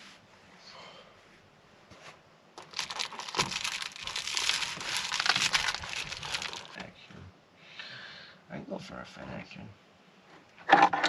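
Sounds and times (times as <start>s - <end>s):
snack packaging crinkling: 2.6s - 6.9s.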